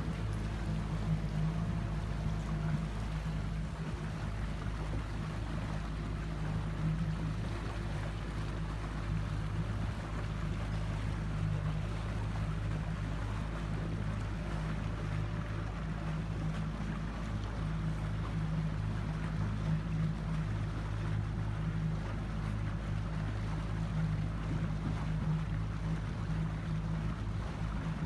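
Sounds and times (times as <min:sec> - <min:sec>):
motorboat engine droning: 0:00.0 - 0:28.0
water noise: 0:00.0 - 0:28.0
wind: 0:00.0 - 0:28.0.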